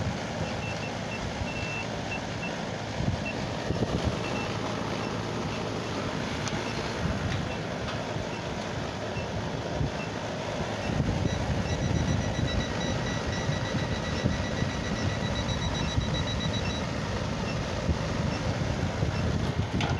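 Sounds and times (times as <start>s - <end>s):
steady low rumble: 0.0s - 19.9s
high-pitched electronic beeps: 10.8s - 17.7s.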